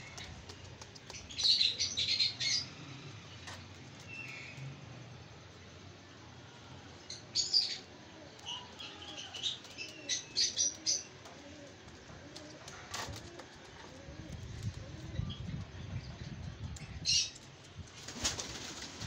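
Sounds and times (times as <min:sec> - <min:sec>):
pigeons cooing: 0:07.6 - 0:15.7.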